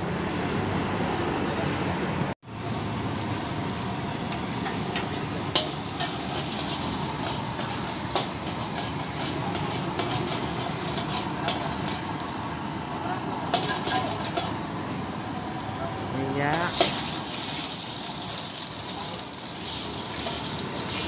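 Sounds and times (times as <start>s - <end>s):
food sizzling in a wok: 2.4s - 21.0s
metal spatula scraping a wok: 4.3s - 14.7s, 16.5s - 18.2s, 19.4s - 21.0s.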